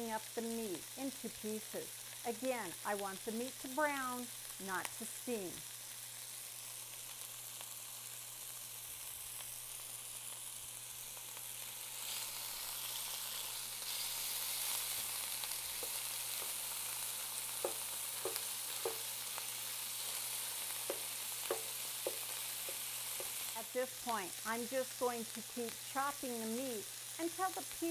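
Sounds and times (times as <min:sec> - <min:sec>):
meat sizzling in skillet: 0:00.0 - 0:27.9
spatula tapping pan: 0:15.7 - 0:16.7, 0:17.6 - 0:19.2, 0:20.8 - 0:23.5.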